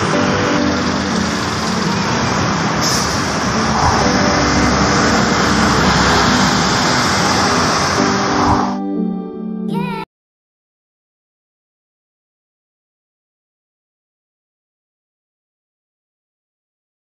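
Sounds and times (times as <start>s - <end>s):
traffic passing close by: 0.0s - 8.8s.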